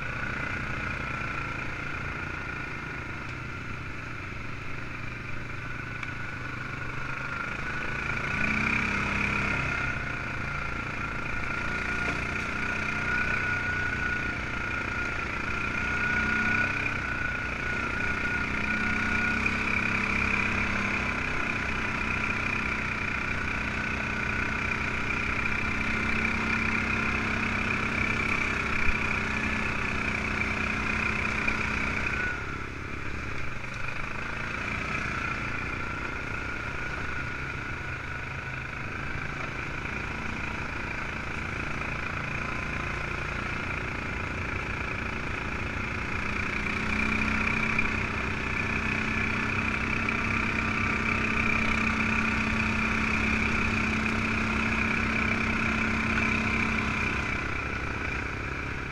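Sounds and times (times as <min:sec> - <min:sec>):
atv engine running: 0:00.0 - 0:58.9.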